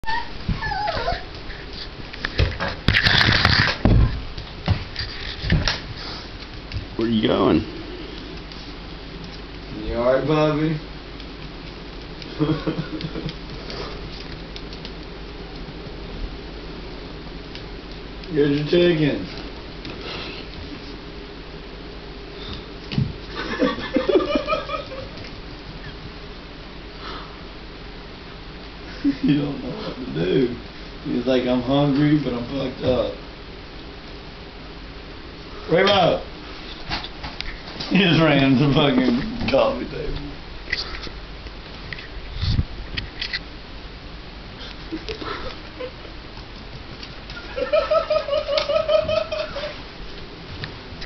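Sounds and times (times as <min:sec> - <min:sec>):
puppy whining: 0:00.0 - 0:01.9
puppy scratching on tile floor: 0:04.4 - 0:06.5.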